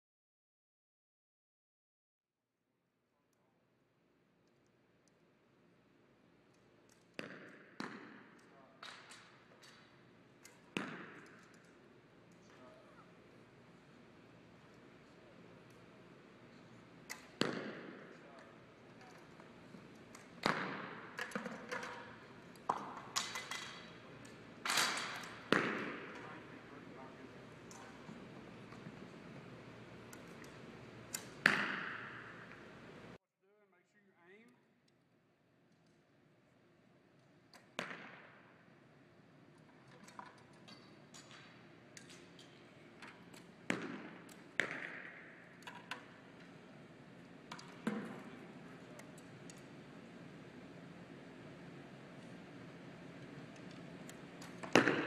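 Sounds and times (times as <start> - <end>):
arrows hitting target: 10.5 - 11.7, 17.1 - 18.1, 20.2 - 23.9, 24.6 - 26.3, 31.2 - 32.6, 43.7 - 46.0, 54.5 - 55.0.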